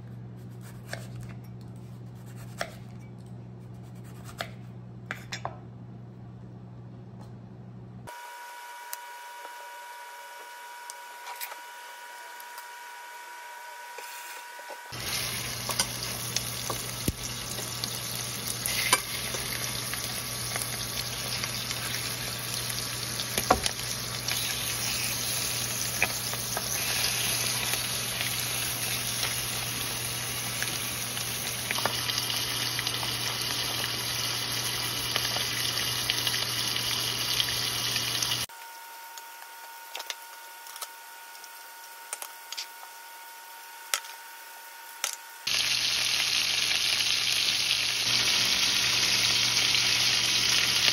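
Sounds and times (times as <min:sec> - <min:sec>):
chicken frying in oil: 0:15.0 - 0:38.5, 0:45.5 - 0:50.9.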